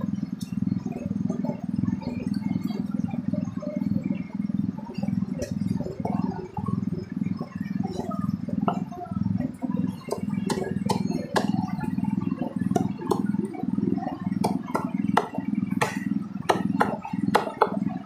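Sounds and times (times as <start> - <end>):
cleaver chopping on wooden board: 10.1 - 11.6, 14.4 - 17.8.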